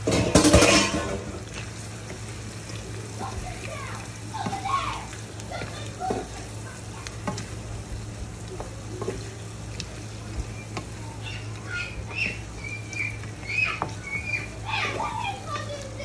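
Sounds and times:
spatula tapping and scraping pan: 0.0 - 2.2, 5.5 - 15.1
faint sizzle: 0.0 - 16.0
steady low hum: 0.0 - 16.0.

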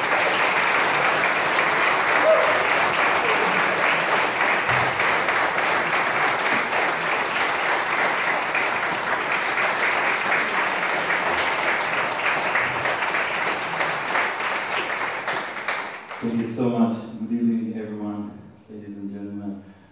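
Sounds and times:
audience applauding: 0.0 - 16.6.

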